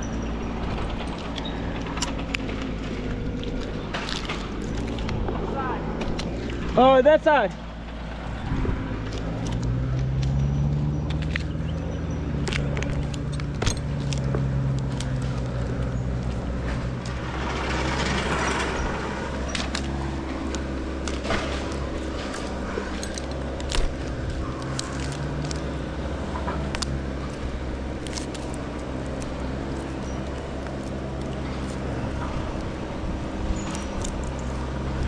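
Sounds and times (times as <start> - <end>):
engine running steadily: 0.0 - 35.0
metallic clinks and scrapes: 9.1 - 32.7.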